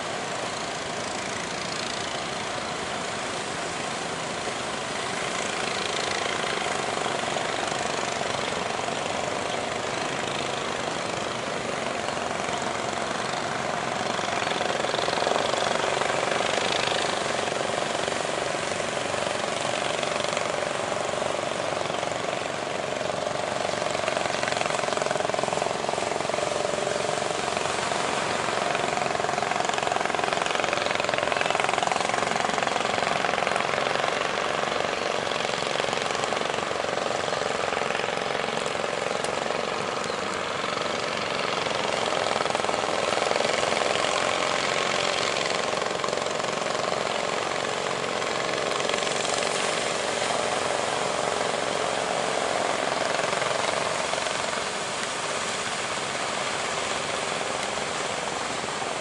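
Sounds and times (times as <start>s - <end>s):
boat engines droning: 0.0s - 59.0s.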